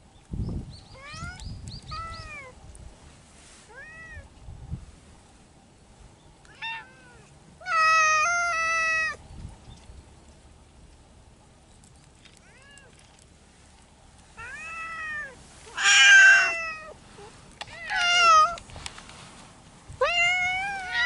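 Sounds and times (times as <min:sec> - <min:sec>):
cats meowing: 0:00.9 - 0:02.6, 0:06.5 - 0:09.2, 0:12.4 - 0:13.0, 0:14.4 - 0:18.6, 0:20.0 - 0:21.0.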